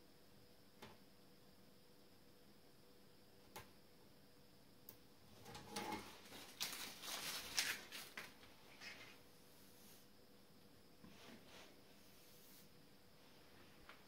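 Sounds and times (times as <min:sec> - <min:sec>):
tape peeling crackly rustling: 0:05.5 - 0:09.2.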